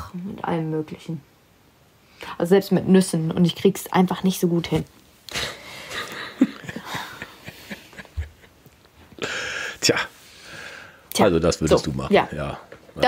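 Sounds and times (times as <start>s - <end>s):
person breathing: 9.2s - 11.1s.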